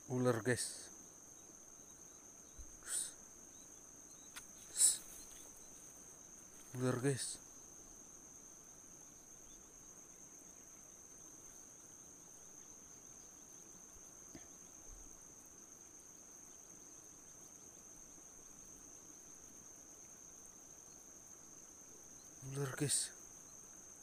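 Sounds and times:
high-pitched insect chirring: 0:00.4 - 0:15.3, 0:22.1 - 0:23.6.

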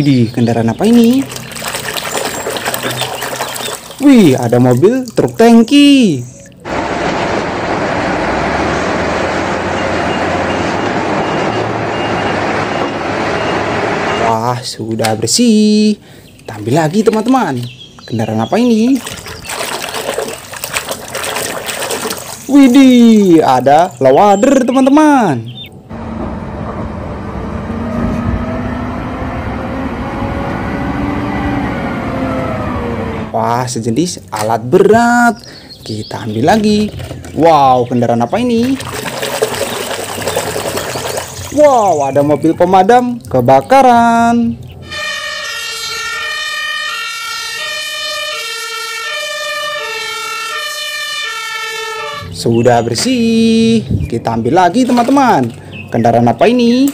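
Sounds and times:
diesel engine running: 0:06.6 - 0:14.3, 0:25.5 - 0:33.4.

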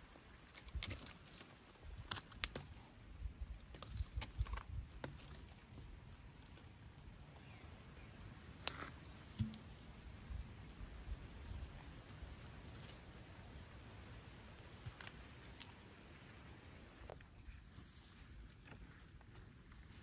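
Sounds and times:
faint outdoor ambience: 0:00.0 - 0:20.0
insect chirping: 0:00.0 - 0:20.0.

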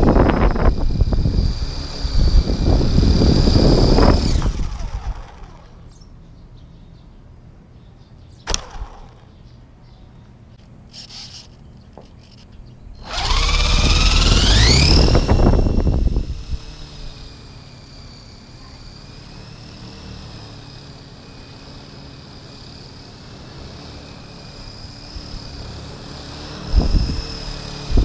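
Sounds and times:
toy helicopter rotors whining: 0:00.0 - 0:06.0, 0:08.5 - 0:09.3, 0:10.8 - 0:28.0
sharp click: 0:08.5 - 0:09.3.

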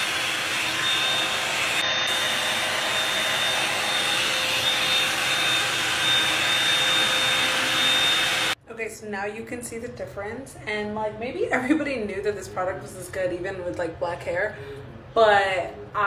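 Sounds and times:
hot-air dryer brush running: 0:00.0 - 0:08.6.

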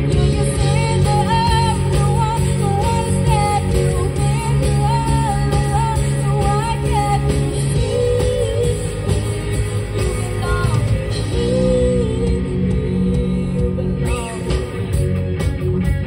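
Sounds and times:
women singing: 0:00.0 - 0:14.6
live pop-rock band: 0:00.0 - 0:16.0.

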